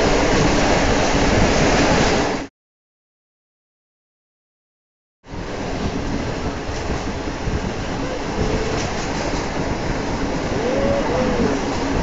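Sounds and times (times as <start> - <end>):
train wheels rumbling on rails: 0.0 - 2.5, 5.3 - 12.0.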